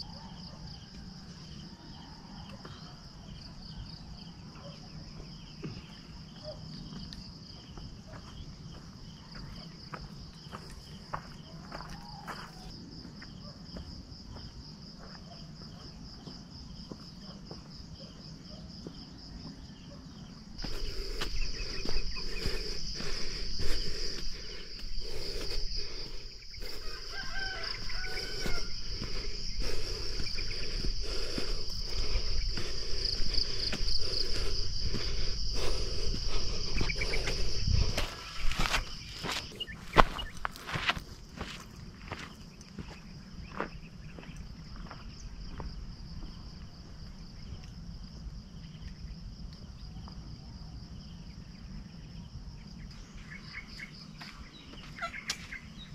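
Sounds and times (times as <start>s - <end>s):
insects buzzing: 0.0s - 55.9s
footsteps on rocky dirt path: 5.1s - 19.8s, 20.6s - 47.1s, 54.0s - 55.8s
bird calls: 52.8s - 55.9s.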